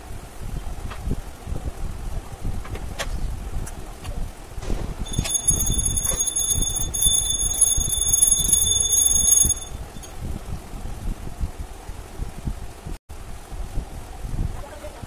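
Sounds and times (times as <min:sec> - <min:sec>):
low background rumble: 0:03.3 - 0:15.0
high-pitched alarm-like ringing tone: 0:05.0 - 0:10.1.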